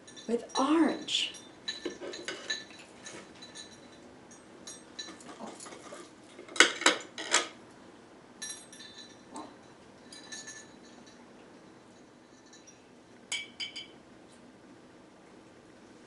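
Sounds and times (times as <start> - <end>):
faint clinks: 0.0 - 6.1, 8.4 - 14.0
knife clattering on dishware: 0.0 - 7.5.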